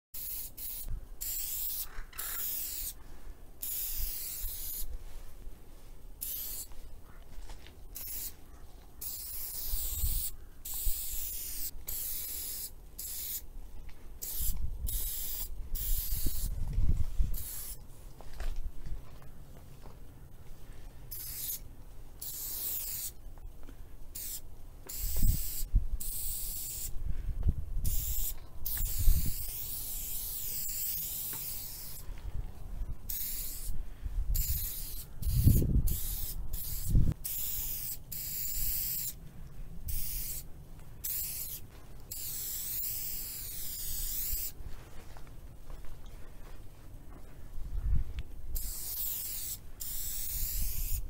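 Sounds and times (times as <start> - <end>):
spray-paint can hissing: 0.2 - 3.0, 3.6 - 4.9, 6.2 - 6.7, 8.0 - 8.4, 9.0 - 13.5, 14.2 - 16.5, 17.3 - 17.8, 21.1 - 21.6, 22.2 - 23.2, 24.2 - 26.9, 27.8 - 32.0, 33.1 - 39.2, 39.9 - 44.6, 48.5 - 51.0.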